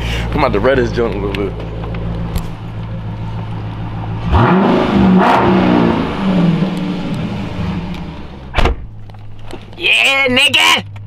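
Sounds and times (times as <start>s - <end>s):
car engine revving: 0.2s - 11.0s.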